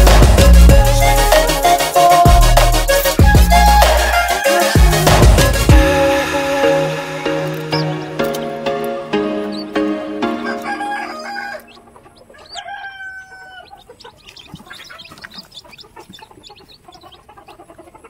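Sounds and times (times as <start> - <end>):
background music: 0.0 - 12.8
chicks peeping: 0.0 - 18.0.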